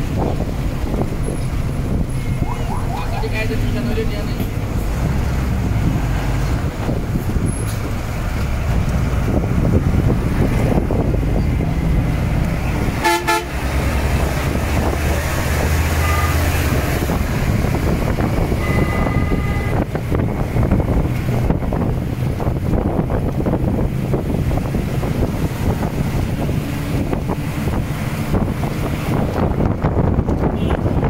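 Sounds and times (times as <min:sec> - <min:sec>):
bus engines and traffic rumble: 0:00.0 - 0:31.0
vehicle horns: 0:12.8 - 0:13.8, 0:15.9 - 0:16.8, 0:18.5 - 0:19.9, 0:30.4 - 0:31.0.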